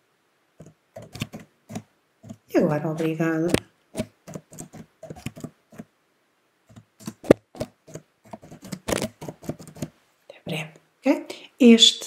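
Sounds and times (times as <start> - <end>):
keyboard keys clicking: 0.6 - 2.4, 3.0 - 5.9, 6.7 - 9.9.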